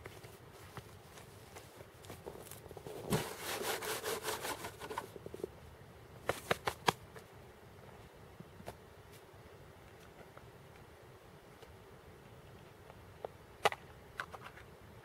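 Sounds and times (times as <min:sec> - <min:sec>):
scraping and rustling of gear: 0:00.0 - 0:05.1.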